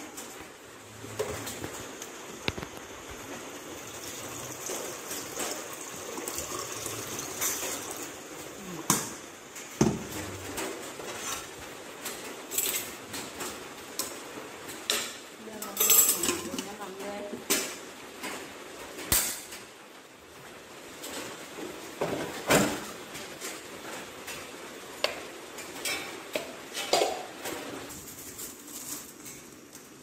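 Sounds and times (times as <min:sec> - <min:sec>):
water pouring into metal pot: 0:03.6 - 0:08.6
metal kitchenware clinking: 0:14.9 - 0:16.7.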